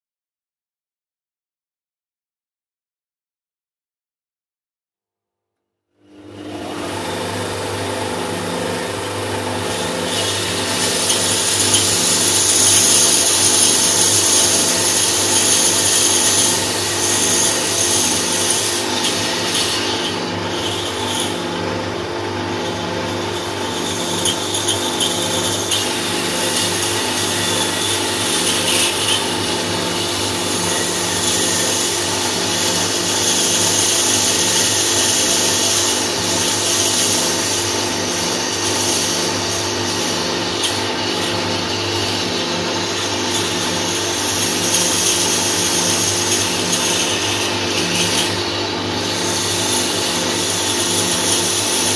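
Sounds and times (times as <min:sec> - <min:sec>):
bandsaw motor hum: 0:05.9 - 0:51.9
saw blade hissing through wood: 0:09.6 - 0:21.4.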